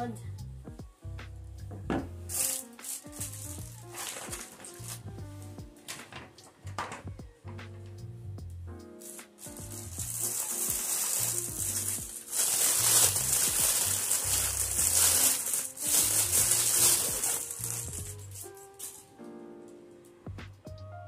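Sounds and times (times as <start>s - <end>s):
background music with bass: 0.0s - 5.9s, 6.6s - 18.7s, 20.3s - 21.0s
plastic packaging crinkling: 2.3s - 5.2s, 9.0s - 19.1s.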